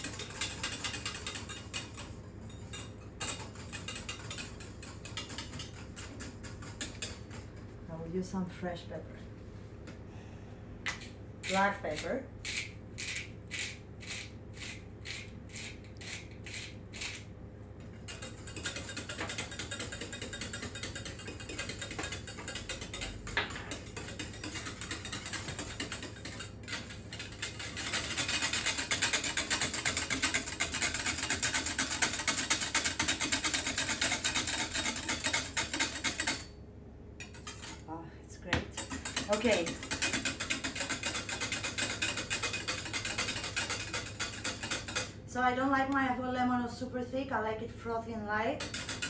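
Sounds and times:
whisk scraping metal saucepan: 0.0s - 7.6s, 18.0s - 36.5s, 37.2s - 37.8s, 38.8s - 45.2s, 48.6s - 49.0s
pepper mill grinding: 10.9s - 17.3s, 48.6s - 49.0s.

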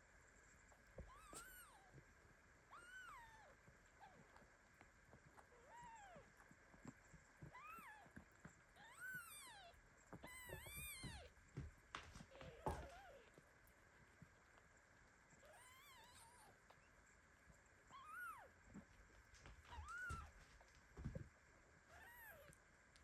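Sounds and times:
newborn kittens mewing: 1.0s - 2.0s, 2.7s - 4.3s, 5.5s - 6.3s, 7.5s - 8.2s, 8.8s - 11.3s, 15.4s - 16.6s, 17.9s - 18.5s, 19.8s - 20.3s, 21.9s - 22.6s.

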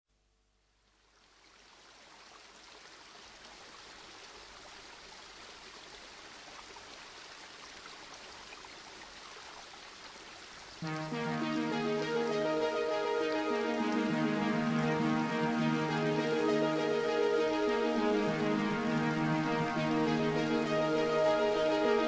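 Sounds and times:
flowing river water: 0.8s - 22.0s
music: 10.8s - 22.0s.

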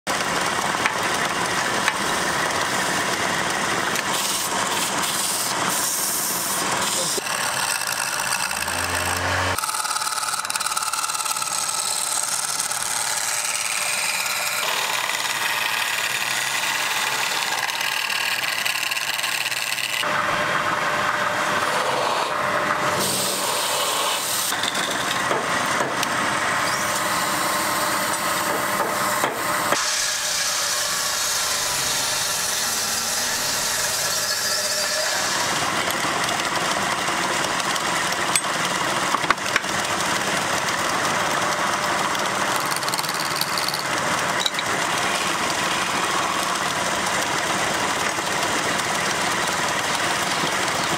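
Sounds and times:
lathe chisel cutting wood: 0.1s - 50.9s.

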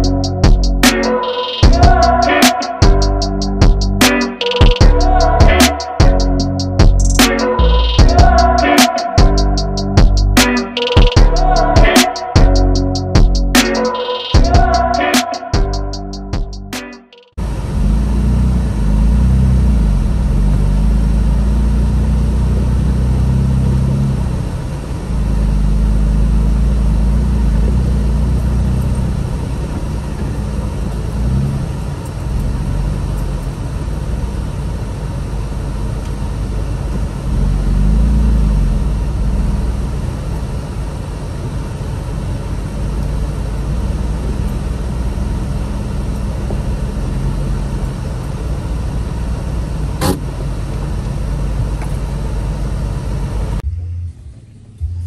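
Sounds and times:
car engine and exhaust drone: 0.0s - 0.9s, 17.4s - 55.0s.

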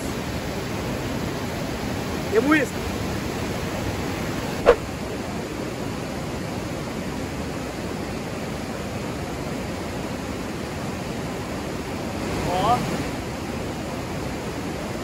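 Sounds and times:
river rapids rushing: 0.0s - 5.6s.

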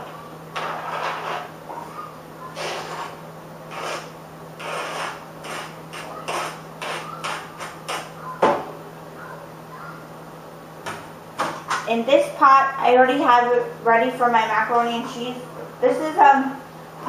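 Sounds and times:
utensil scraping plate: 0.6s - 1.9s, 2.5s - 8.1s.

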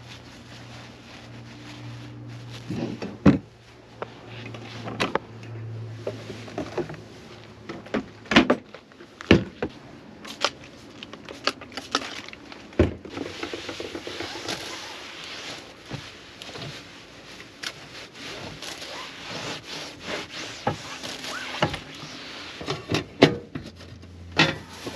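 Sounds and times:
cloth wiping glass cooktop: 0.0s - 3.0s, 13.4s - 23.0s, 24.5s - 24.9s.

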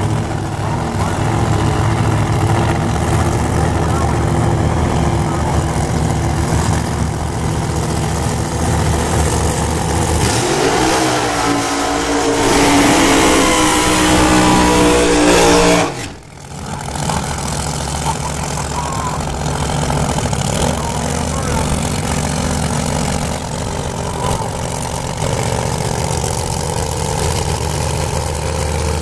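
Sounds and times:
drag racing engines idling: 0.0s - 29.0s
engine revving high: 8.7s - 23.4s.

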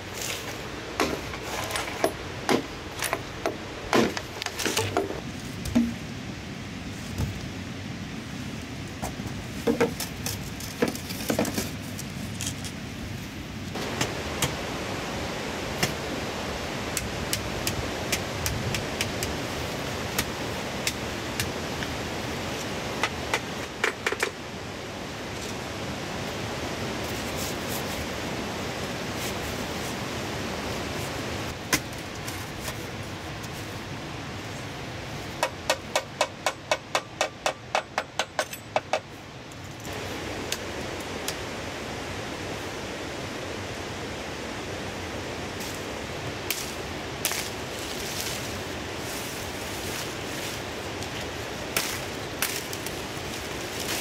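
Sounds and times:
river rushing: 0.0s - 36.4s, 38.6s - 54.0s
bamboo tubes knocking: 2.0s - 6.0s, 9.6s - 10.0s, 35.4s - 39.1s.

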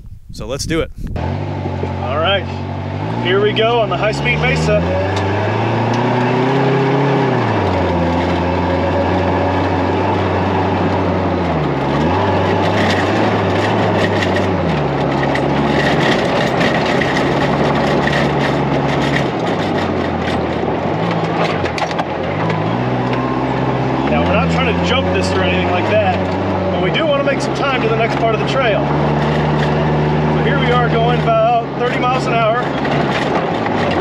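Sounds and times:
tyre and wind noise: 0.0s - 1.9s
buggy engine running hard: 1.0s - 34.0s
rattling clicks and knocks: 10.8s - 23.2s, 30.6s - 34.0s.

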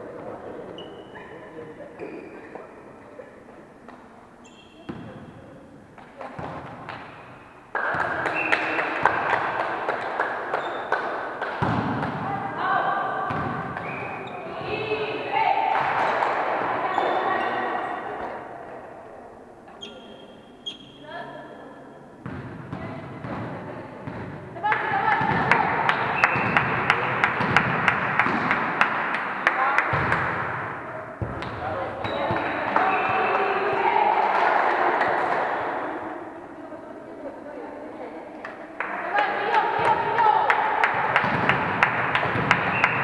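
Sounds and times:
players' voices: 0.0s - 43.0s
rhythmic clapping: 7.7s - 12.1s, 24.6s - 30.7s, 32.2s - 35.7s, 38.4s - 43.0s.

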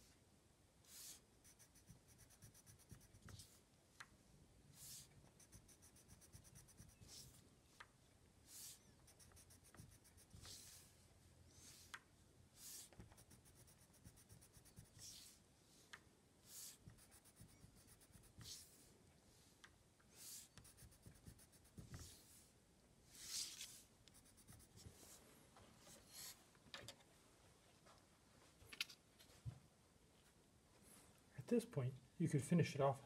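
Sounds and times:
pencil scratching on card: 0.9s - 3.6s, 4.8s - 7.4s, 8.5s - 10.8s, 12.6s - 15.4s, 16.5s - 18.7s, 20.2s - 22.3s, 23.3s - 25.2s.

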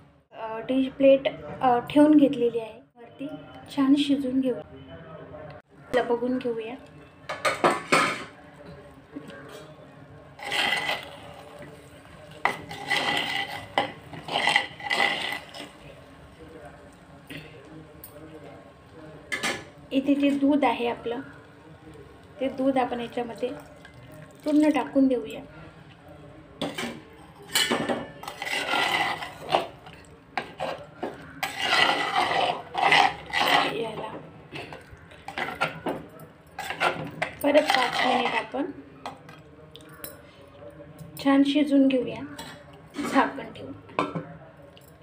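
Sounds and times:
spoon scraping clay pot: 10.4s - 15.9s, 27.4s - 35.9s, 36.5s - 38.6s, 42.3s - 43.4s.

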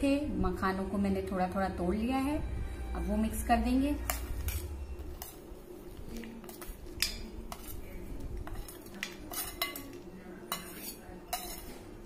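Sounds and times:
spoon scraping steel bowl: 3.9s - 12.0s.

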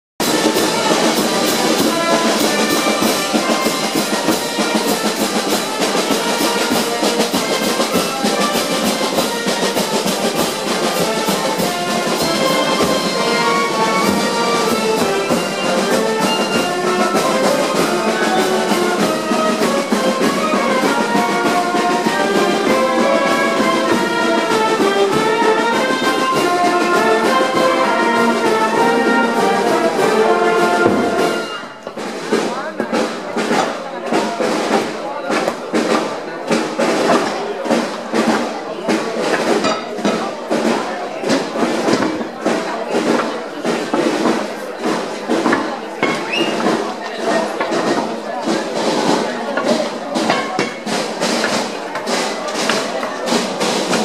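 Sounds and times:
brass horns playing a tune: 0.2s - 31.8s
steady drum beat: 0.2s - 54.0s.

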